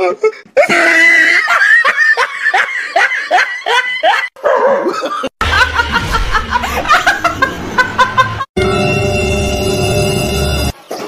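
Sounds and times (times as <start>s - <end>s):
people laughing: 0.7s - 8.5s
woman laughing loudly: 0.7s - 8.5s.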